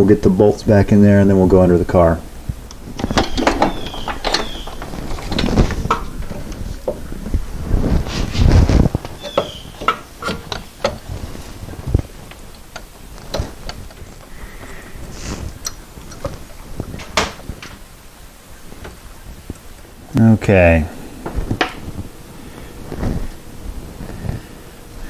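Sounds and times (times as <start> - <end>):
metal clatter: 2.8 - 7.4
metal parts clicking and clinking: 3.0 - 7.0.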